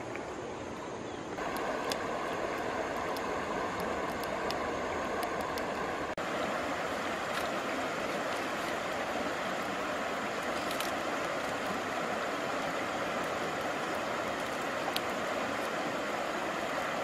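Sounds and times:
stream running over stones: 0.0 - 17.0
faint ticks: 13.9 - 15.1.

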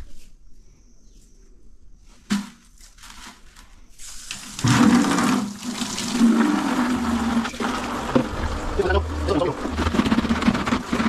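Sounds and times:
water rushing into toilet bowl: 4.2 - 11.0.

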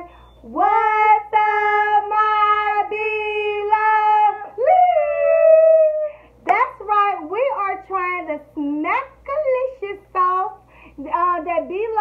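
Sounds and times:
girl and woman singing: 0.0 - 6.2.

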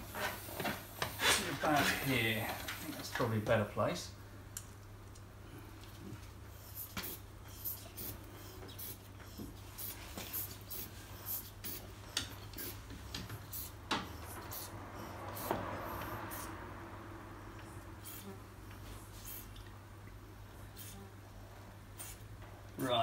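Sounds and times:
hand tools clicking and tapping: 12.1 - 14.2.

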